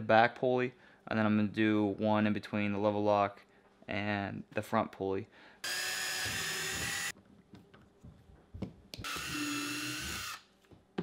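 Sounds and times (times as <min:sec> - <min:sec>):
cordless drill driving screws: 0:05.6 - 0:07.1, 0:09.0 - 0:10.4.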